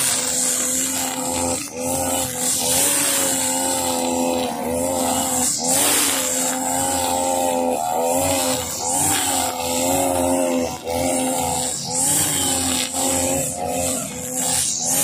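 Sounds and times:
brush cutter engine running: 0:00.0 - 0:15.0
trimmer line whipping through grass: 0:00.0 - 0:15.0.

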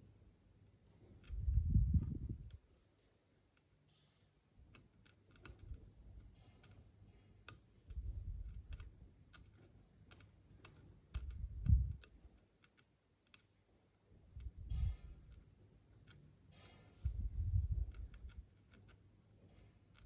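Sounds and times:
metal tool clicking on pins: 0:03.6 - 0:13.6, 0:14.4 - 0:20.0.

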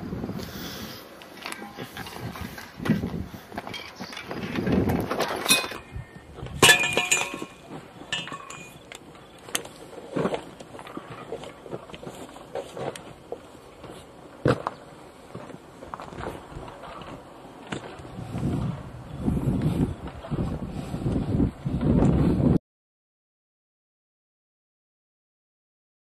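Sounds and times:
rumbling handling noise: 0:00.0 - 0:22.6
pieces clinking: 0:06.6 - 0:08.9.

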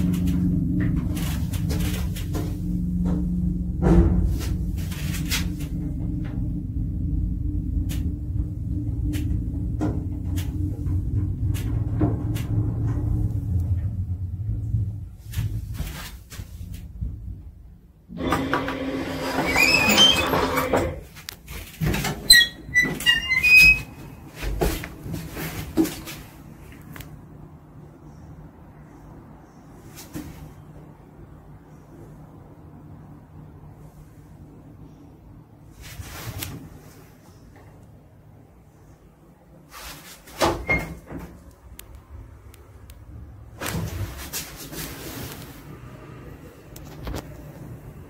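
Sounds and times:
lift doors sliding rattle: 0:00.0 - 0:14.7, 0:18.1 - 0:26.2
lift doors sliding shut: 0:18.1 - 0:21.2
short high squeaks: 0:19.0 - 0:21.0, 0:22.3 - 0:24.2.

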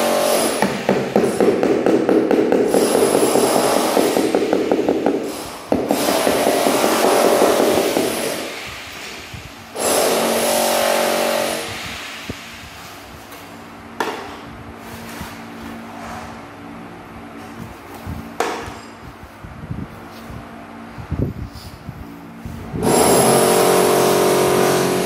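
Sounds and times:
scraping on tile: 0:00.3 - 0:09.1, 0:14.8 - 0:16.4
hammer handle knocking tile: 0:00.6 - 0:08.2.

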